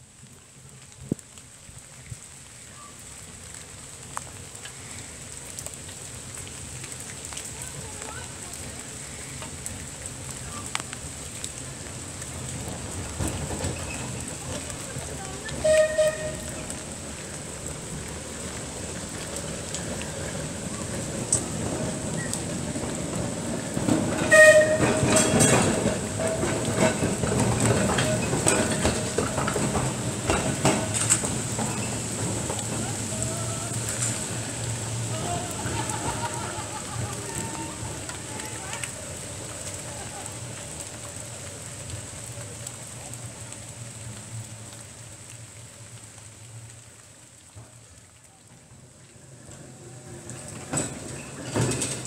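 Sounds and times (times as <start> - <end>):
tram wheels clicking over rail joints: 7.6 - 43.4, 49.2 - 52.0.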